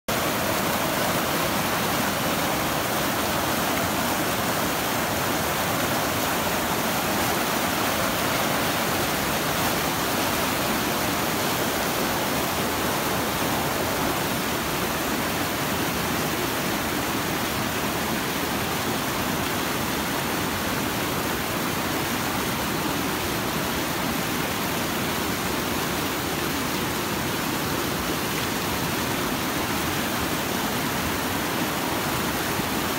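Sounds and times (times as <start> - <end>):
river rushing over rocks: 0.1 - 32.9.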